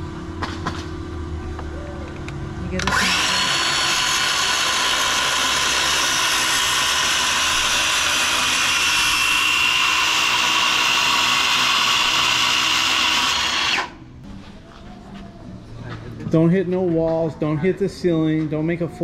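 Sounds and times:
circular saw whining: 0:02.7 - 0:14.1.

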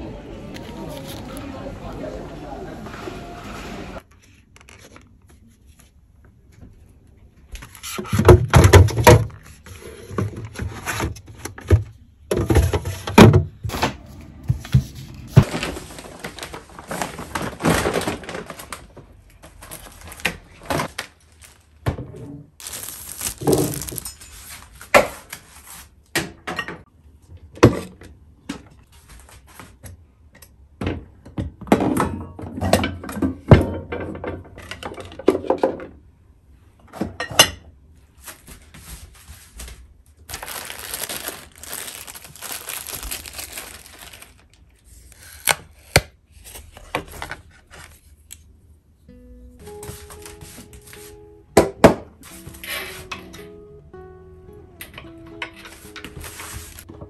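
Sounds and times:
objects knocking and thunking: 0:08.0 - 0:19.1, 0:30.7 - 0:36.2
rustling: 0:22.6 - 0:25.9, 0:38.2 - 0:45.4.

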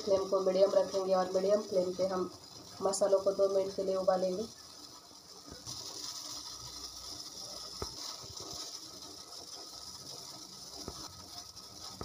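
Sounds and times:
water boiling in a pot: 0:00.0 - 0:12.0.

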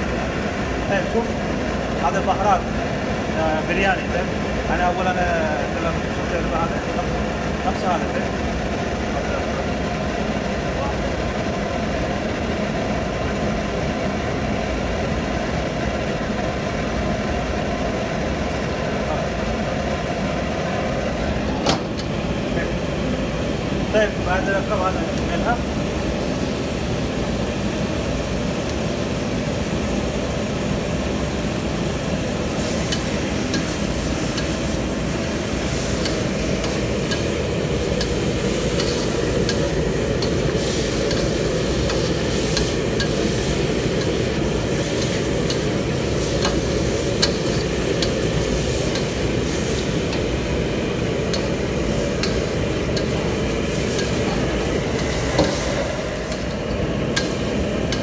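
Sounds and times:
light sizzle: 0:32.3 - 0:58.0.

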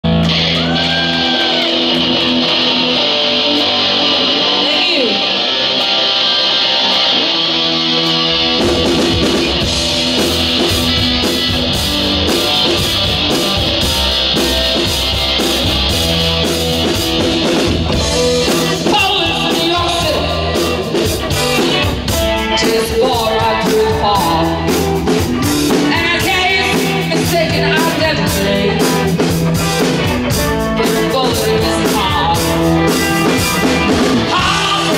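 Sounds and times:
bass guitar: 0:00.0 - 0:34.9
drum kit: 0:00.0 - 0:34.9
electric guitar: 0:00.0 - 0:34.9
woman singing: 0:22.4 - 0:24.8, 0:25.7 - 0:29.1, 0:30.8 - 0:32.6, 0:34.3 - 0:34.9.

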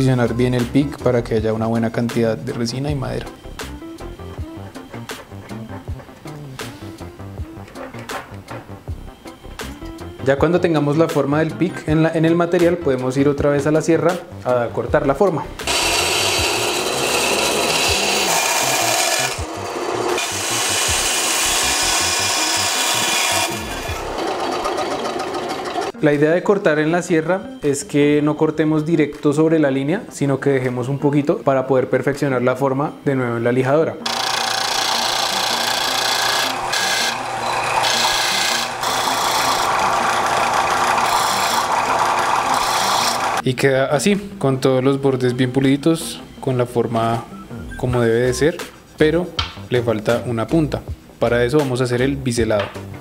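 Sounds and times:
disc sander grinding hiss: 0:15.6 - 0:25.9, 0:34.1 - 0:43.4
motor humming: 0:15.6 - 0:25.9, 0:34.1 - 0:43.4
band saw cutting: 0:15.6 - 0:26.0, 0:34.0 - 0:43.4.

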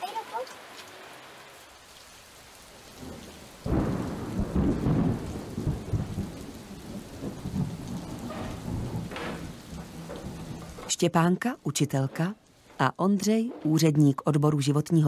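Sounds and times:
rain falling: 0:00.0 - 0:15.0
thunder clap and rumble: 0:02.9 - 0:11.0.

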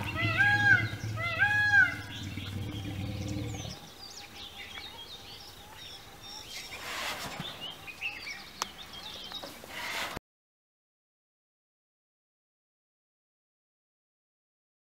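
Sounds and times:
elephant low rumble: 0:00.0 - 0:04.1
small birds chirping: 0:00.0 - 0:10.2.

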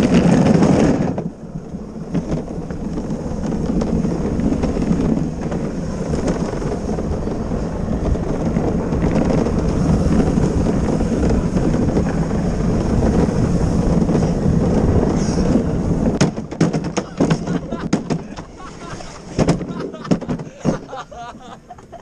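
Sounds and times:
wheels rumbling on concrete: 0:00.0 - 0:22.0
wind buffeting microphone: 0:00.0 - 0:22.0.

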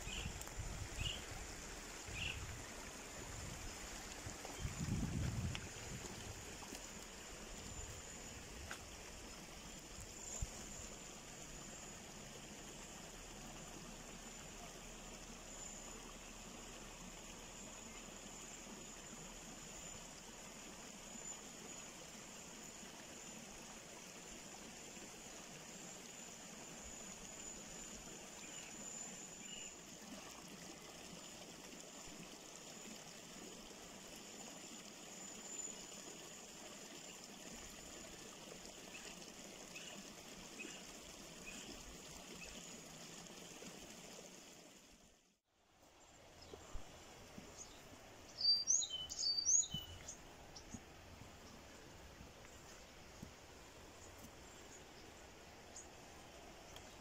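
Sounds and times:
running river water: 0:00.0 - 0:57.0
faint bird chirps: 0:47.5 - 0:50.8.

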